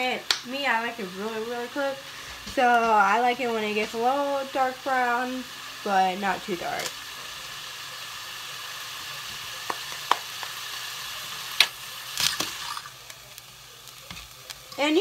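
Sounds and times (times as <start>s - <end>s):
chicken sizzling in oil: 0.0s - 15.0s.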